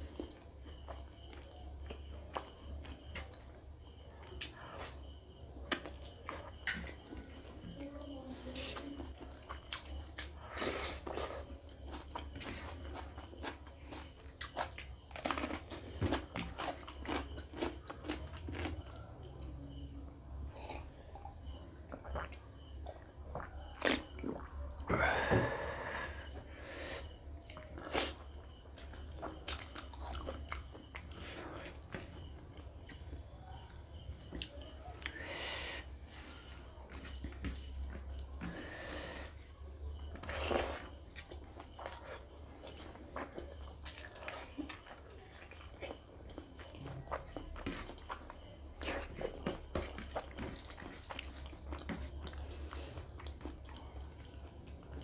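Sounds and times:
chewing and mouth smacks: 11.0s - 19.1s, 21.9s - 24.9s, 27.4s - 33.1s, 40.0s - 55.0s.

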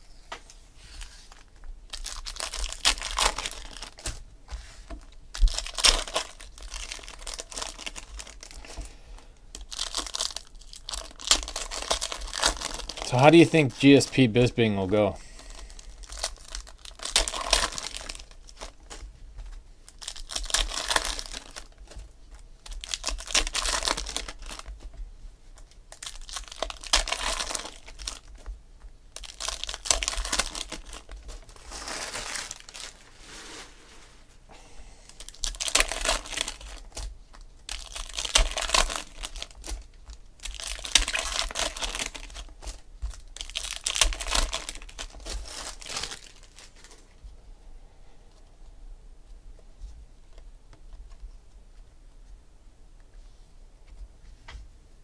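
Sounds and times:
foil wrappers crinkling and tearing: 1.0s - 4.2s, 4.8s - 8.9s, 9.5s - 19.1s, 19.8s - 25.0s, 25.6s - 28.5s, 29.1s - 34.1s, 35.1s - 47.2s.

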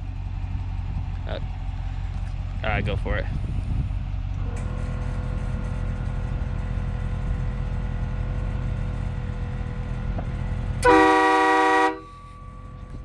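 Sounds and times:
steady low rumble: 0.0s - 10.9s, 11.9s - 13.0s
air train horn blast: 10.8s - 12.4s.

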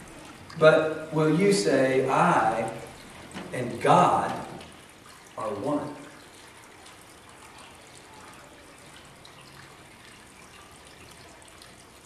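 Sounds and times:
low even hiss: 0.0s - 6.2s.

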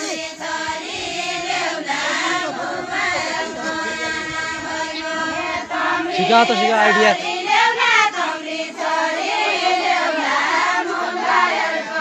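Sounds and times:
group singing folk song: 0.0s - 12.0s.

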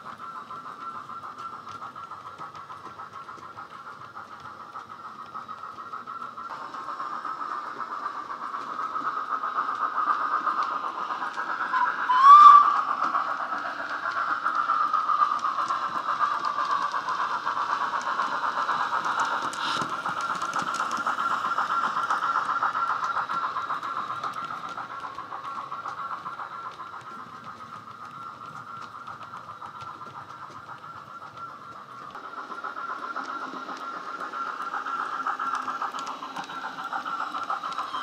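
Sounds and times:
steam exhaust beats and hiss: 0.0s - 38.0s
short rising whistle: 11.7s - 13.4s.

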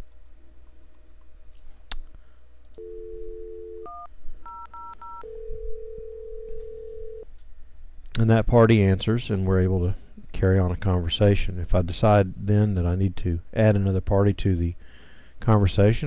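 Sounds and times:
dial tone: 2.8s - 7.2s
keypad tones: 2.8s - 7.2s.

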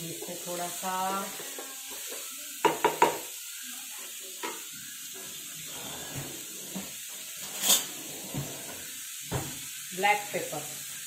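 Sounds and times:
vegetables sizzling in a pan: 0.0s - 11.0s
wooden spatula knocking on pan: 1.5s - 3.3s.

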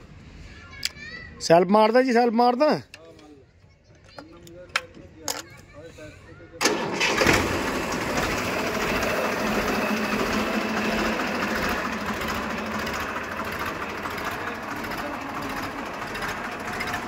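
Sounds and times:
tractor diesel engine idling: 6.6s - 17.0s.

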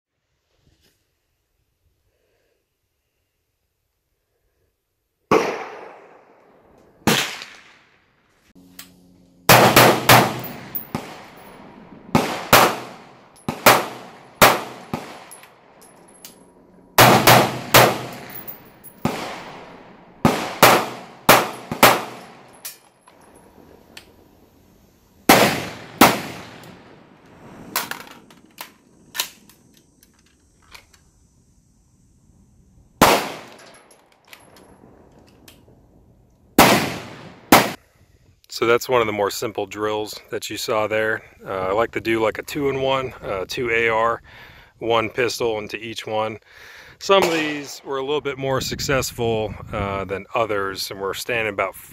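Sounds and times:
pistol shots: 5.3s - 6.3s, 7.0s - 7.8s, 9.5s - 11.5s, 12.1s - 15.4s, 17.0s - 22.6s, 25.3s - 27.0s, 33.0s - 33.8s, 36.6s - 37.8s
rifle shots: 5.3s - 6.3s, 7.0s - 7.9s, 9.5s - 15.7s, 17.0s - 22.6s, 25.3s - 28.0s, 33.0s - 33.8s, 36.6s - 37.8s, 47.1s - 47.8s.

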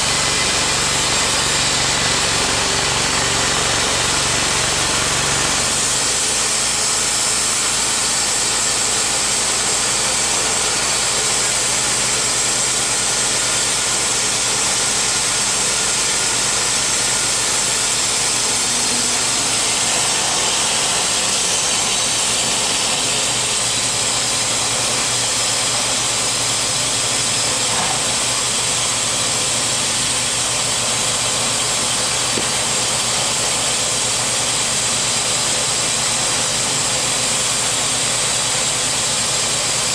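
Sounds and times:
saw cutting wood: 0.0s - 39.9s
sawmill engine running: 0.0s - 39.9s
band blade hissing: 15.2s - 26.4s.

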